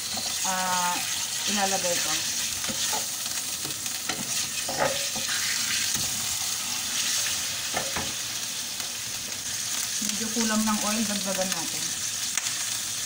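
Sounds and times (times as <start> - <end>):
meat sizzling in oil: 0.0 - 13.0
wooden spatula scraping pan: 4.1 - 5.4.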